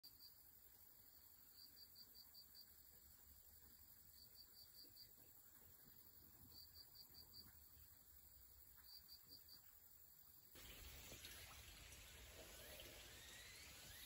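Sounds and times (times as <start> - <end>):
insect chirping: 0.0 - 14.0
hissy ambience: 10.6 - 14.0.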